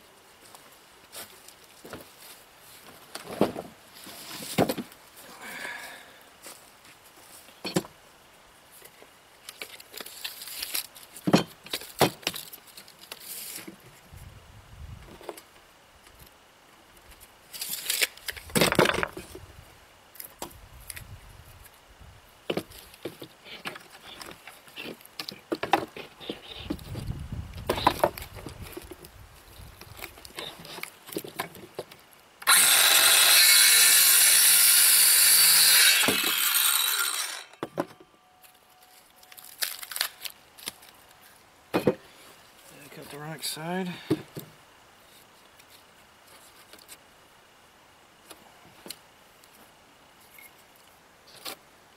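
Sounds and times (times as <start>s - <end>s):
wooden boards knocking and clattering: 18.5s - 19.4s, 41.7s - 42.0s
circular saw cutting wood: 32.4s - 37.7s.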